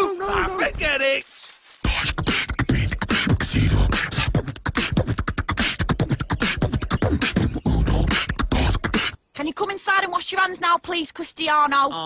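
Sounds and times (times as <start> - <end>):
person beatboxing: 1.8 - 9.2.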